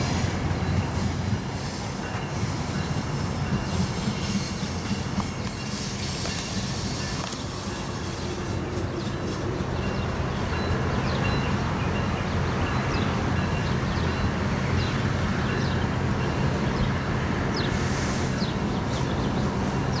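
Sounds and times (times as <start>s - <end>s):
diesel train engine drone: 0.0s - 20.0s
wheels rumbling on track: 0.0s - 20.0s
brief hiss: 17.7s - 18.6s.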